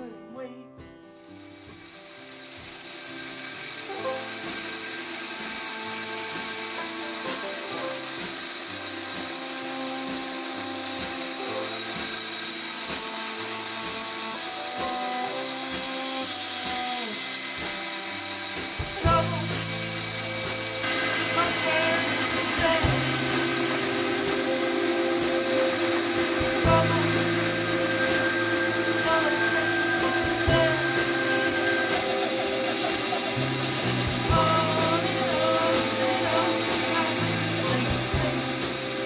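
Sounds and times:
background music: 0.0s - 39.0s
bandsaw cutting wood: 1.2s - 39.0s.

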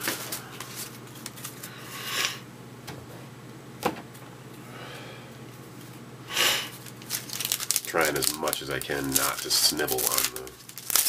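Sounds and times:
cards rustling: 0.0s - 1.8s, 6.8s - 11.0s
person sniffing: 1.8s - 2.4s, 6.3s - 6.8s.

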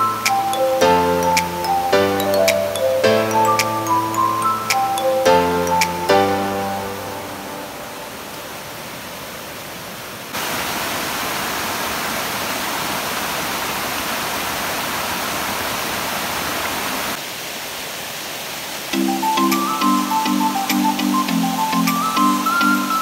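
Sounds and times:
waterfall rushing: 0.0s - 23.0s.

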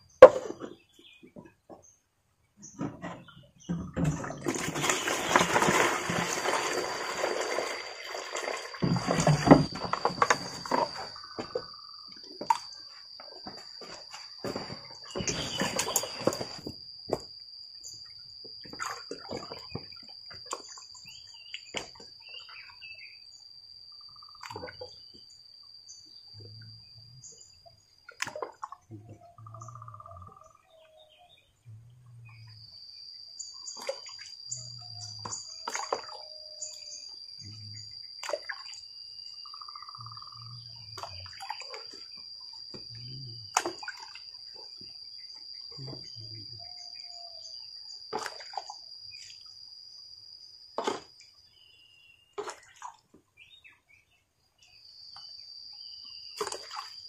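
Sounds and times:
bird calls: 14.5s - 16.7s, 28.9s - 31.6s.

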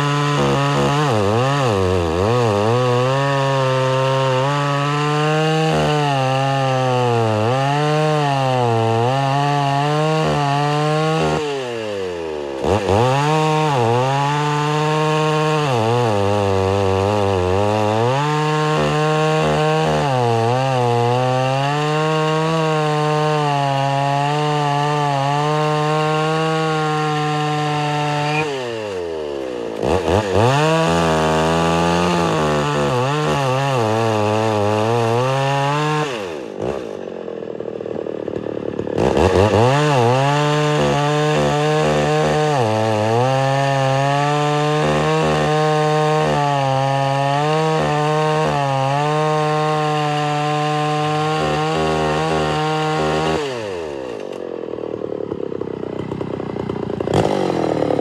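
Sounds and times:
chainsaw cutting a log: 0.0s - 58.0s.

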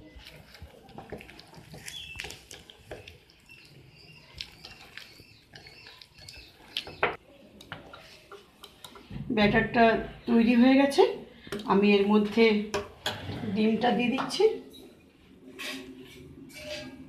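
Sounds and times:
spoon stirring thick batter: 0.0s - 10.5s.

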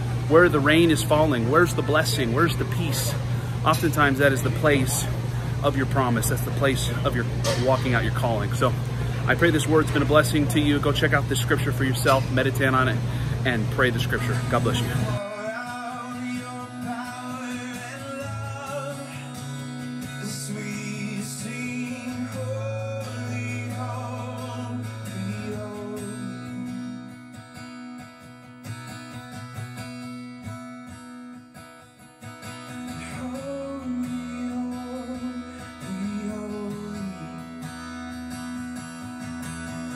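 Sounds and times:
acoustic guitar: 0.0s - 39.9s
person singing: 15.2s - 27.0s, 32.9s - 37.5s.

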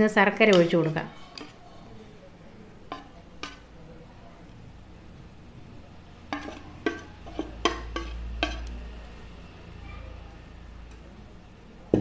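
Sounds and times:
metal spoon scraping saucepan: 0.4s - 2.1s, 2.9s - 3.7s, 6.3s - 8.9s.

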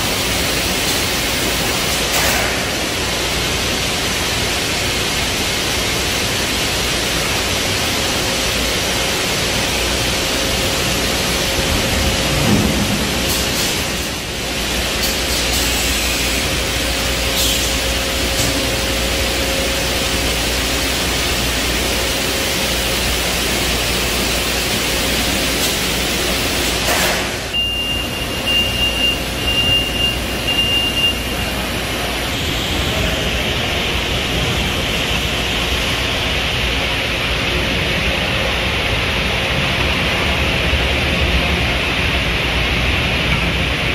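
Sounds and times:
factory machinery hiss and hum: 0.0s - 43.9s
short high beeps: 27.5s - 31.4s.

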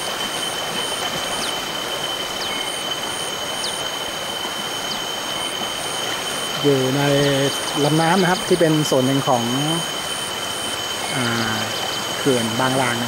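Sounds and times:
high insect whine: 0.0s - 13.0s
pulsing high chirp: 0.0s - 13.0s.

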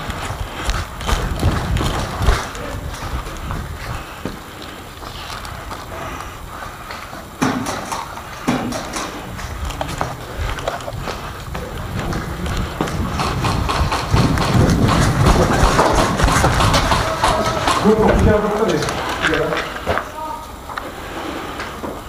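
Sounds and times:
footsteps: 0.0s - 22.0s
loud knocks: 7.4s - 10.2s, 11.5s - 18.6s
low rumble on microphone: 9.2s - 18.4s.

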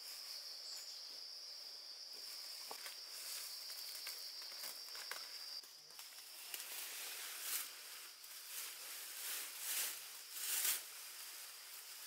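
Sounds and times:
insect trilling: 0.0s - 8.4s.

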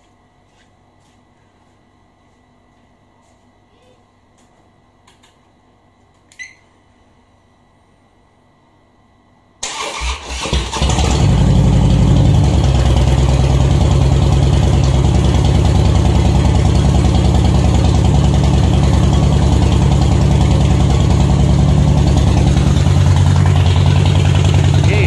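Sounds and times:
electric starter cranking: 9.6s - 11.4s
motorcycle engine idling loudly: 10.8s - 25.0s.

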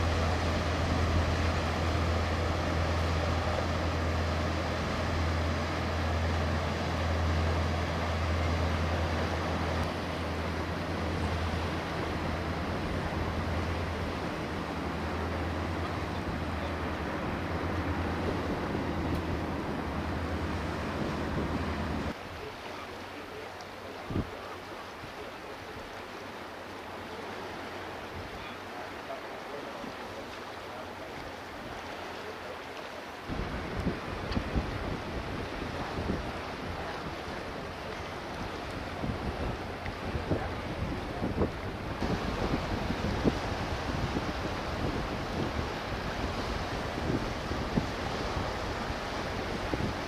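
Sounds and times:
ship diesel engine drone: 0.0s - 22.2s, 33.2s - 50.0s
water wash: 0.0s - 50.0s
wind: 0.0s - 50.0s.

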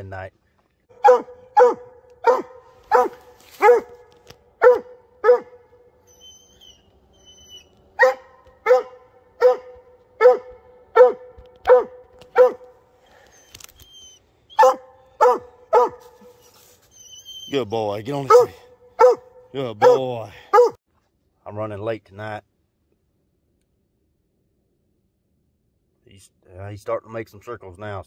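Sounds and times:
dog barking: 0.9s - 5.8s, 8.0s - 12.8s, 14.6s - 16.3s, 18.2s - 20.8s.

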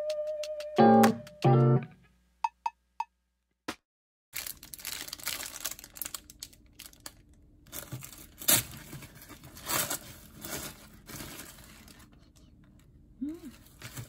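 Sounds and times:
crackles: 4.4s - 12.5s
crinkling and rustling handling: 4.4s - 14.0s.

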